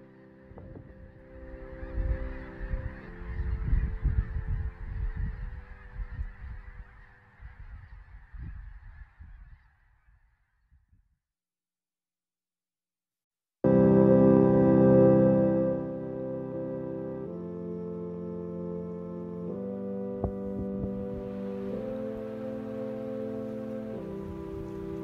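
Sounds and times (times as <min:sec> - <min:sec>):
soft background music chords: 0:00.0 - 0:06.7, 0:13.7 - 0:25.0
wind rumbling on microphone: 0:00.5 - 0:11.2, 0:20.2 - 0:25.0.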